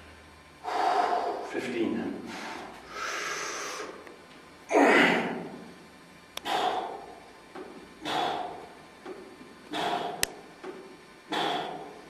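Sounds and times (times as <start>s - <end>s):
man breathing hard: 0.6s - 1.5s, 2.2s - 4.1s, 6.4s - 10.5s, 11.3s - 12.0s.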